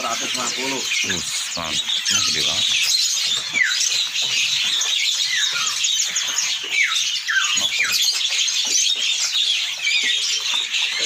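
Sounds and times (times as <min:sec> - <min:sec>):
songbirds chirping and calling: 0:00.0 - 0:11.0.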